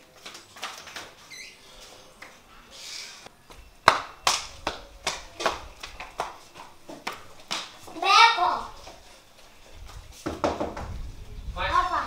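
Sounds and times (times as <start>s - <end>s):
child footsteps running on concrete: 0.0s - 1.4s, 3.5s - 11.1s.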